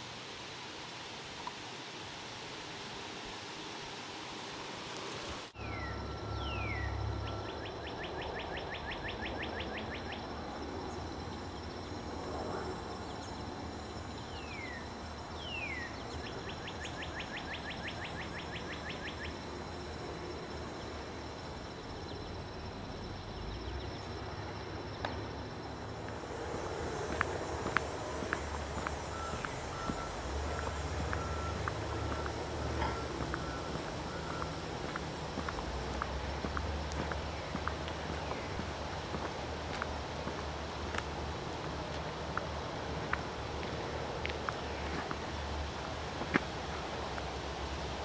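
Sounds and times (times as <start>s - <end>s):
wind noise hiss: 0.0s - 5.6s, 10.6s - 48.0s
songbird whistles and trill: 5.6s - 10.2s.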